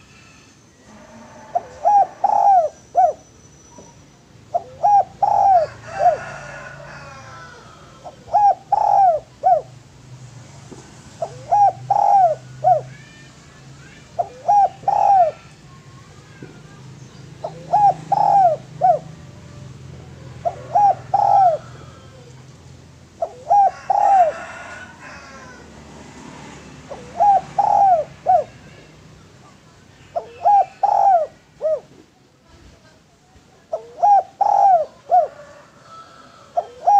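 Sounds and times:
dove cooing: 1.3s - 3.2s, 4.5s - 9.8s, 11.2s - 13.0s, 14.0s - 15.7s, 17.3s - 22.5s, 23.2s - 25.8s, 26.7s - 28.9s, 30.0s - 32.0s, 33.7s - 36.9s.

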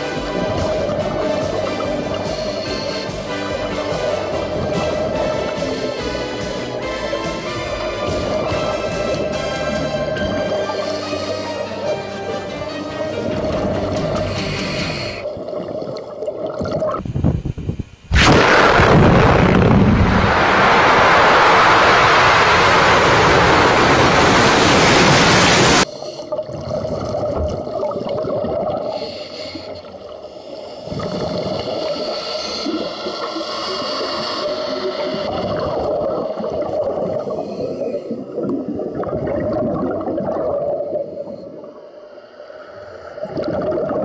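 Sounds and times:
scuba exhalation bubbling: 0.0s - 12.4s, 13.2s - 17.0s, 22.2s - 41.8s, 43.1s - 44.0s
steady underwater hum: 0.0s - 44.0s
falling water and debris: 18.2s - 25.9s.

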